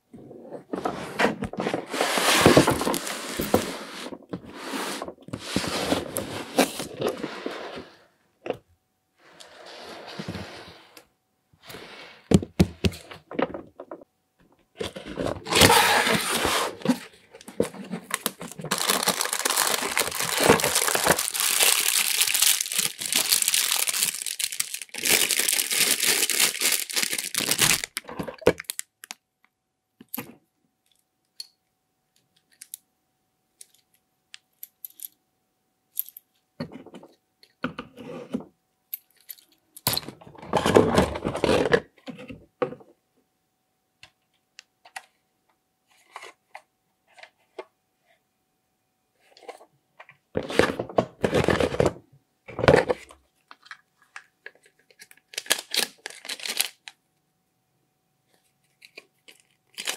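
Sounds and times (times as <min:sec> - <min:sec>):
cardboard tearing and scraping: 0:00.8 - 0:07.5, 0:14.9 - 0:28.0.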